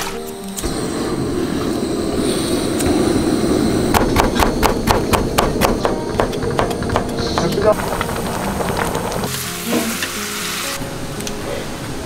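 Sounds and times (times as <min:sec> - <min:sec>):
steady low rumble: 0:00.6 - 0:09.3
cleaver chopping carrots: 0:04.0 - 0:08.2.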